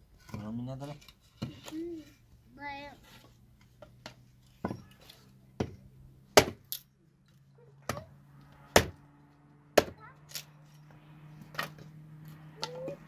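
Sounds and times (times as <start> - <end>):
hatchet chopping firewood: 5.6 - 6.9, 7.8 - 9.0, 9.7 - 10.5.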